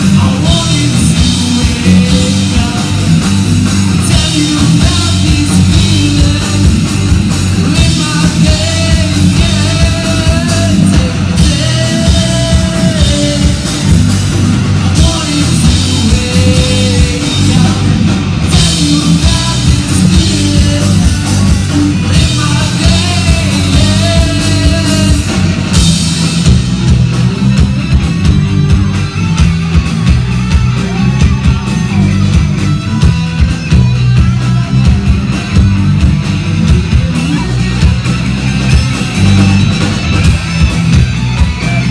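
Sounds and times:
lead vocalist singing: 0:00.0 - 0:25.8
live rock band playing: 0:00.0 - 0:41.9.

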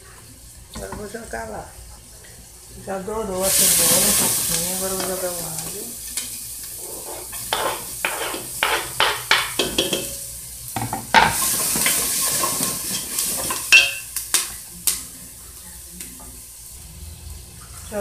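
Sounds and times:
garlic and onion sizzling in oil: 0:00.0 - 0:18.0
wooden spoon knocking on pot: 0:07.5 - 0:10.2.

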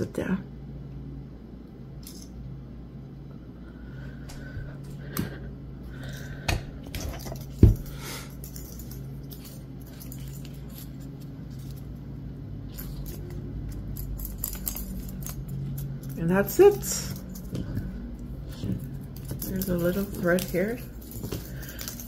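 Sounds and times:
steady low hum: 0:00.0 - 0:22.0
metal clamp and ring clinking: 0:08.3 - 0:11.8, 0:12.7 - 0:17.6.

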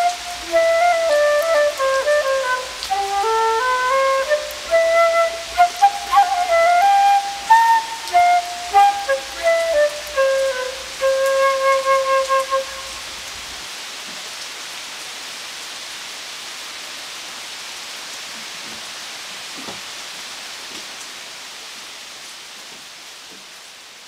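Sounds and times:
flute note: 0:00.0 - 0:13.1
steady rain falling: 0:00.0 - 0:24.0.

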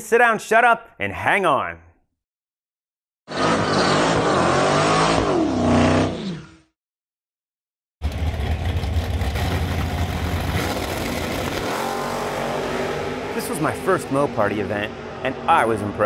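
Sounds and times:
engine revving: 0:03.3 - 0:06.7, 0:08.0 - 0:16.0.

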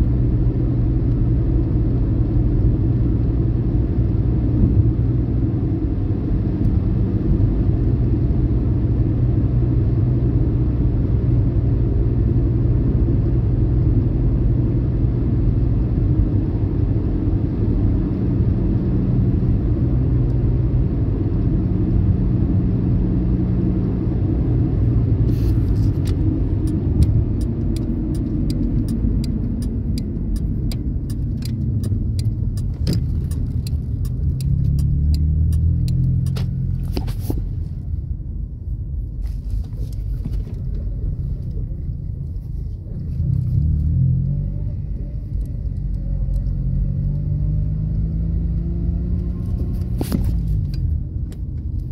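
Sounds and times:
car engine and road noise: 0:00.0 - 0:51.9
sharp clicks: 0:26.0 - 0:37.0.

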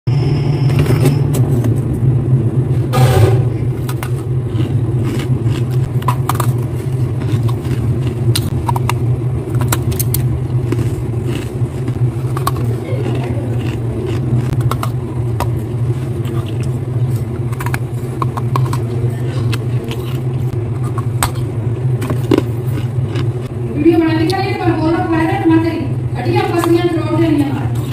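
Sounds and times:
loud steady low hum: 0:00.0 - 0:27.9
frost crunching and scraping: 0:03.7 - 0:23.5.

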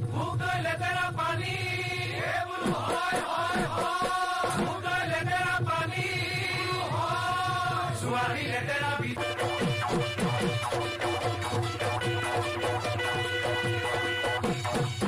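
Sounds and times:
voices chanting together: 0:00.0 - 0:09.7
steady drum beat: 0:01.2 - 0:15.0.

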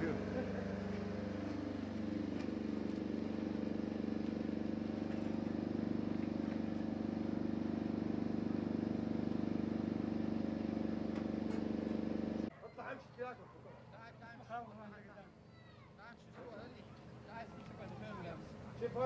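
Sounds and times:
vehicle engine running: 0:00.0 - 0:12.5.

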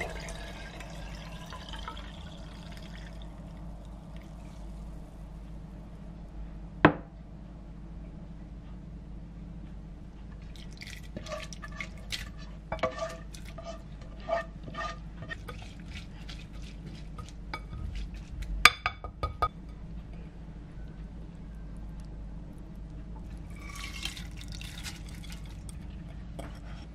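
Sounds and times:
water dripping into bowl: 0:00.0 - 0:03.6.

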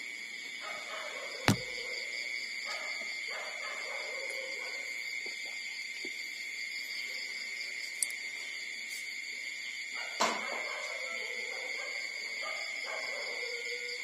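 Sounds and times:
sharp knock: 0:01.5 - 0:01.7.

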